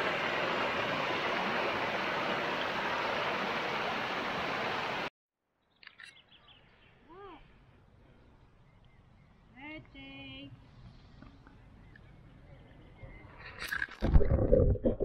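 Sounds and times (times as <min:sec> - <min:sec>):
river water rushing over rocks: 0:00.0 - 0:05.1.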